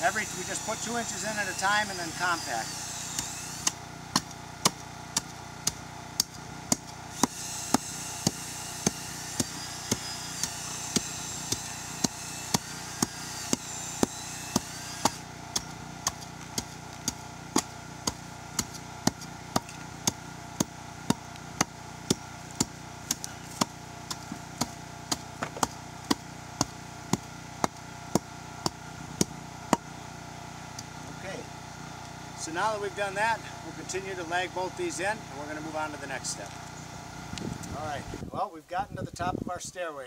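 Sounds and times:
hand tamper thudding on gravel: 0:03.2 - 0:29.9.

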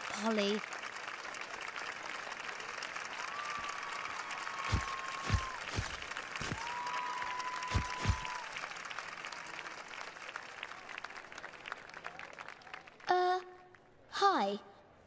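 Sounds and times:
crowd applauding and cheering: 0:00.0 - 0:13.1
sharp pops: 0:04.7 - 0:06.7, 0:07.6 - 0:08.4
long whistle: 0:06.6 - 0:08.4.

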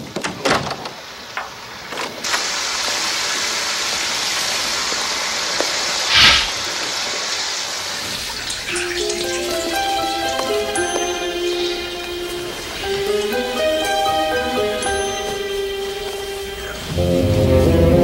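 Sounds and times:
shower water hissing: 0:01.2 - 0:18.0
shower curtain swish: 0:06.1 - 0:06.7.

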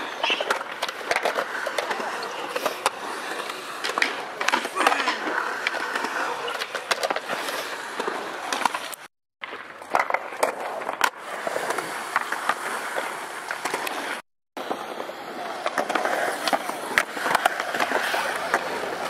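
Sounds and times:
skateboard wheels rolling on concrete: 0:00.0 - 0:19.0
skateboard clacks and knocks: 0:00.1 - 0:11.2.

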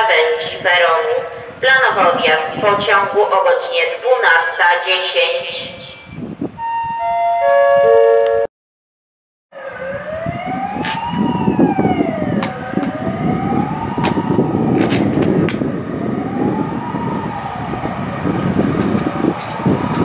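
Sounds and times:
wailing siren: 0:06.6 - 0:08.5, 0:09.5 - 0:20.0.

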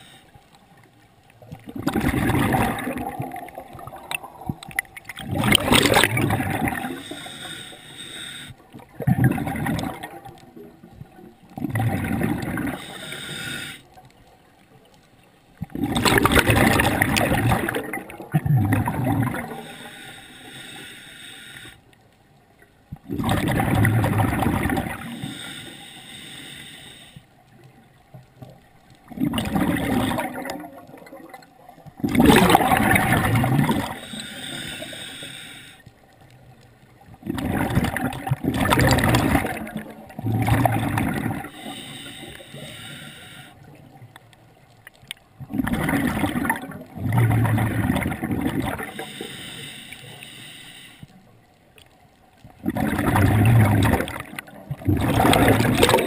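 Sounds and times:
regulator hiss on inhale: 0:00.0 - 0:00.9, 0:06.7 - 0:08.9, 0:12.7 - 0:14.1, 0:19.4 - 0:22.1, 0:25.0 - 0:27.6, 0:33.7 - 0:36.3, 0:41.4 - 0:43.9, 0:48.8 - 0:51.4
bubbling on exhale: 0:01.5 - 0:07.5, 0:08.8 - 0:10.7, 0:11.5 - 0:13.3, 0:15.6 - 0:20.1, 0:23.0 - 0:25.5, 0:29.1 - 0:35.2, 0:37.2 - 0:42.9, 0:45.4 - 0:49.4, 0:52.6 - 0:56.0.

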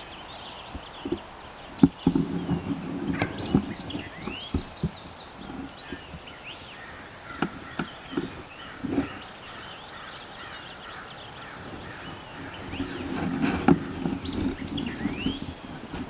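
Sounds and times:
songbirds chirping and singing: 0:00.0 - 0:16.0
low thumps and knocks: 0:01.8 - 0:05.7.

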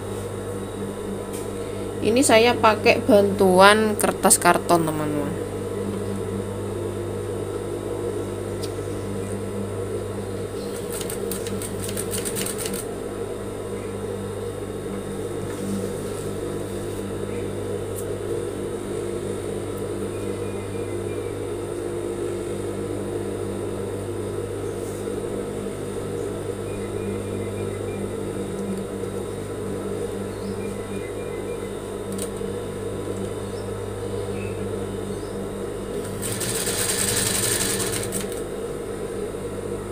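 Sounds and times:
sewing machine running: 0:10.6 - 0:12.9, 0:36.0 - 0:38.4.

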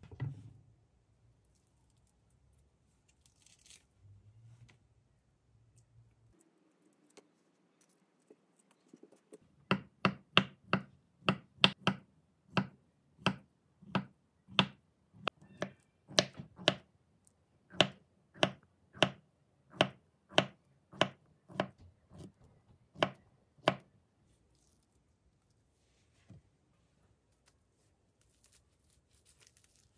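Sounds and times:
knife chopping on cutting board: 0:09.7 - 0:16.8, 0:17.7 - 0:19.2, 0:19.8 - 0:22.3.

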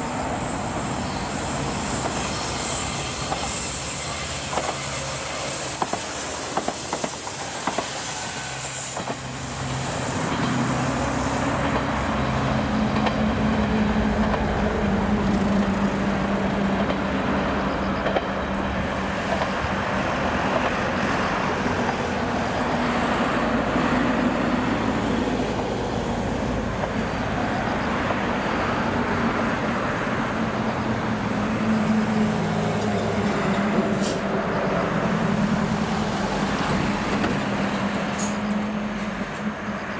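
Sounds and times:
train low drone: 0:00.0 - 0:39.9
train wheels clicking over rail joints: 0:01.7 - 0:24.8, 0:36.0 - 0:39.6.

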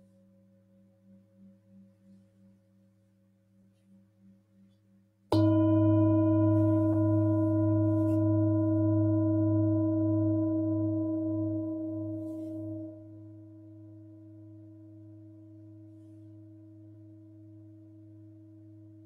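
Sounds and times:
singing bowl ringing: 0:05.3 - 0:15.0.

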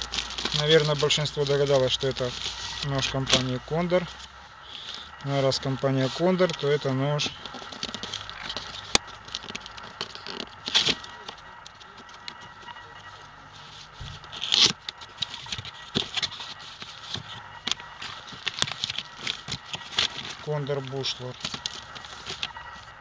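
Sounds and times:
plastic crackling: 0:00.0 - 0:23.0
cardboard flaps scraping: 0:13.6 - 0:22.9.

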